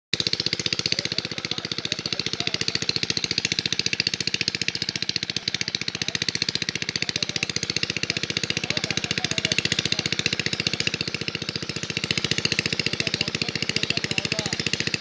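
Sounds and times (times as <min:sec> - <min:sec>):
small engine idling: 0:00.1 - 0:15.0.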